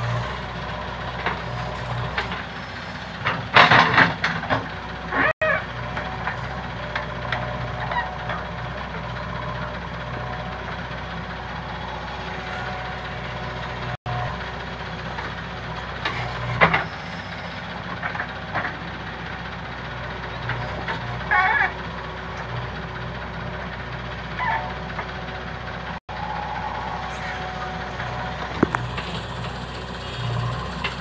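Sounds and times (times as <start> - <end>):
backhoe diesel engine running: 0.0 - 31.0
high-pitched squeal: 11.3 - 15.4, 26.1 - 31.0.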